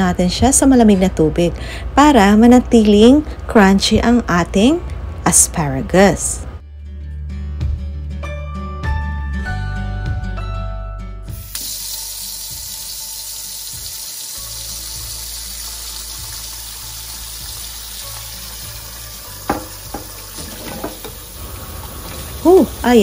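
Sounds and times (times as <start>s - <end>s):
tap water running into bowl: 11.5s - 22.4s.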